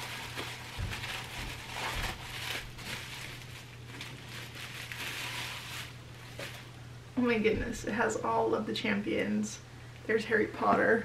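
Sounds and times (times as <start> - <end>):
bubble wrap rustling and crinkling: 0.0 - 6.8.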